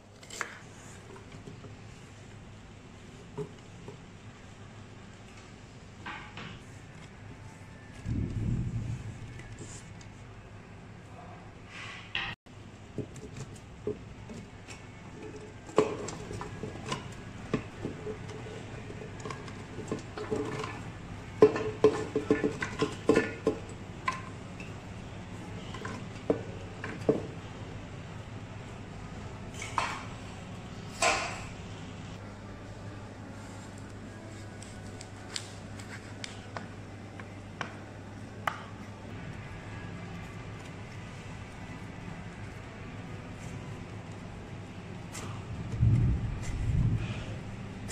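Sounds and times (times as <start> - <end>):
steady low hum: 6.8 - 11.7, 23.2 - 47.9.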